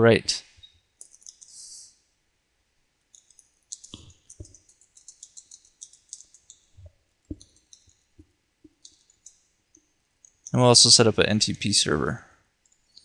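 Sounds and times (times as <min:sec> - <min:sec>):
typing on computer keyboard: 0:01.0 - 0:01.5, 0:03.1 - 0:06.7, 0:07.3 - 0:08.0, 0:08.7 - 0:09.4.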